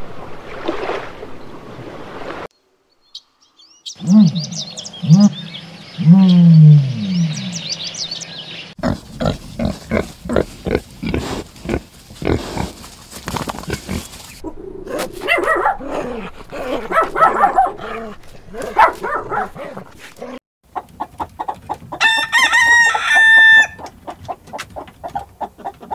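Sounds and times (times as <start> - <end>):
birds chirping: 2.6 - 11.8, 13.5 - 20.3
low falling calls: 3.0 - 13.0, 13.8 - 20.4
mix of animal calls: 3.9 - 9.0
piglets grunting: 8.8 - 12.7.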